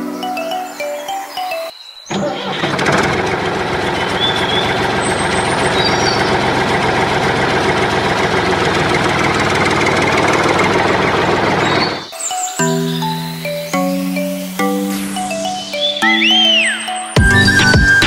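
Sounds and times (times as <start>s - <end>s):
tractor engine knocking: 2.1s - 12.0s.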